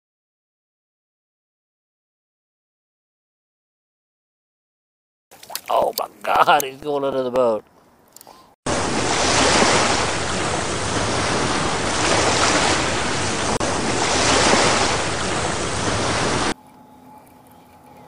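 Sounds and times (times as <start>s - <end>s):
ocean waves breaking: 8.7s - 16.6s.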